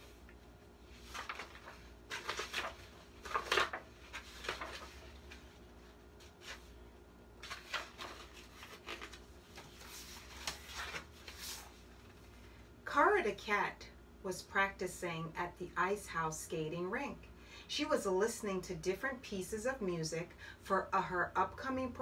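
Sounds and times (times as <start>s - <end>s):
book pages rustling: 0.0s - 6.8s, 7.4s - 12.5s.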